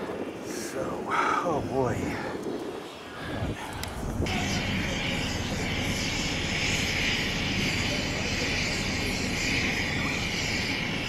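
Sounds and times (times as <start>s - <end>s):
gas hissing from tank: 3.1s - 11.0s.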